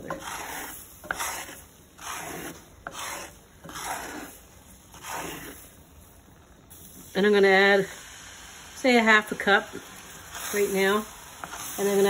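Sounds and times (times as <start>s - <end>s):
spatula scraping frying pan: 0.0s - 6.2s, 9.4s - 12.0s.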